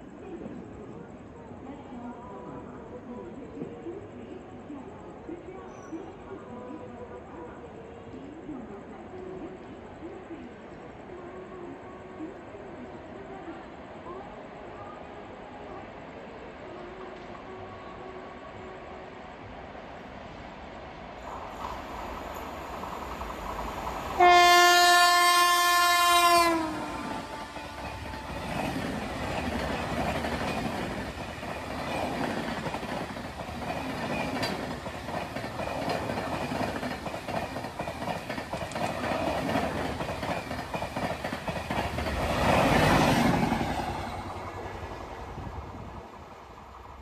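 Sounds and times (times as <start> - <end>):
train horn blast: 24.2 - 28.8
train coaches clattering over rails: 26.0 - 44.7.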